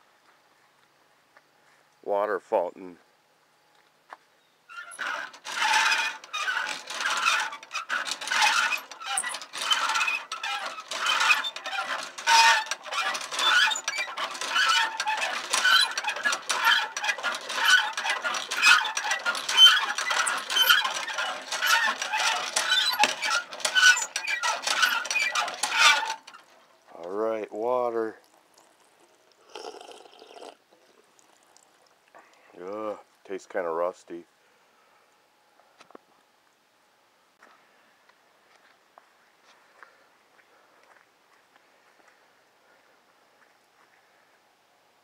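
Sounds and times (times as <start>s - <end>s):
hand pump squeaking and clanking: 4.7s - 27.2s, 28.0s - 31.8s.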